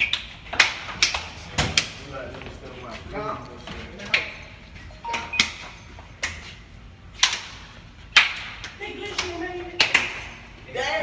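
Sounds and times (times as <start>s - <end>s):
hand slaps: 0.0s - 2.0s, 7.2s - 10.3s.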